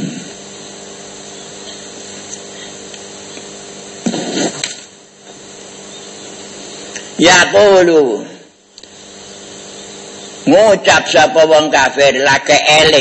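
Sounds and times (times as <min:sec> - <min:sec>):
small motor humming: 0:00.0 - 0:07.2, 0:08.6 - 0:10.6.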